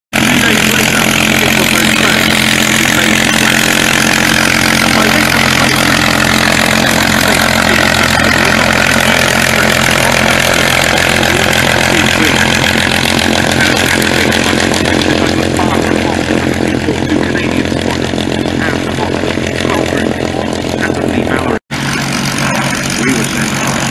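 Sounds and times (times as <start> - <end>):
aircraft engine running: 0.1 - 23.9.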